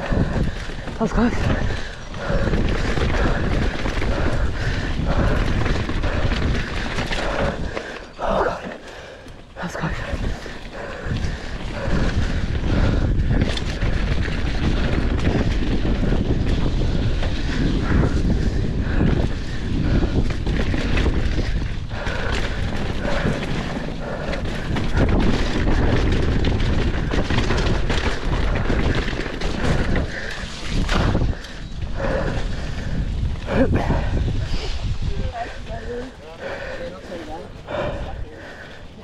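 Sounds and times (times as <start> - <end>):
wind rushing over microphone: 0.0 - 8.8, 9.4 - 39.0
bike rattling over bumps: 0.0 - 39.0.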